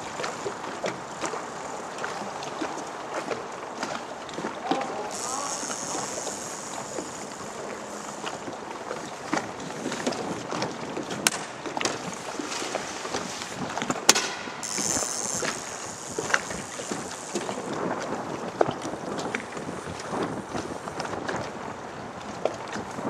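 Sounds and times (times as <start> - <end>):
wind and water noise: 0.0 - 23.0
small ticks: 4.7 - 8.5, 14.5 - 17.7
brief high buzz: 14.2 - 17.7.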